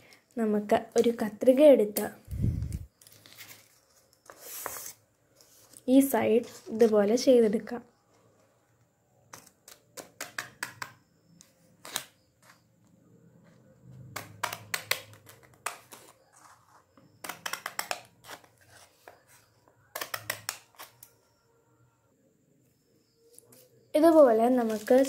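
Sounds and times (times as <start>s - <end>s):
scissors snipping paper: 17.2s - 18.5s.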